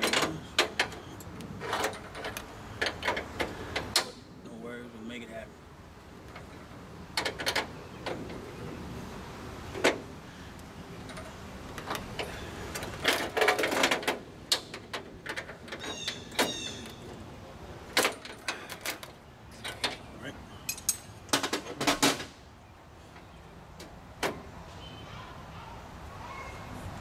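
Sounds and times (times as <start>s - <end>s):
hand tools clinking on metal: 18.0s - 21.5s.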